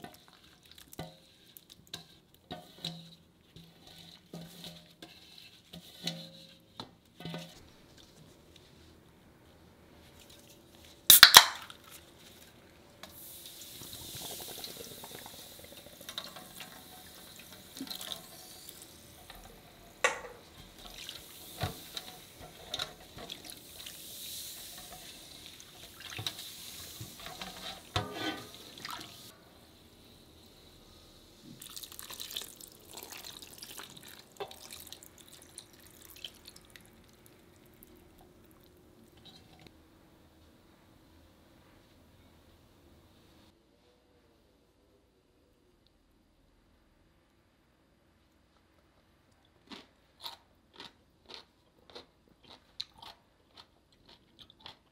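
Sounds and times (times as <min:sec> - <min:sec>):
liquid swishing in a metal bowl: 0:00.0 - 0:06.7
soda fizzing and splashing: 0:11.1 - 0:11.8, 0:13.1 - 0:20.0, 0:20.6 - 0:29.3, 0:31.4 - 0:38.8.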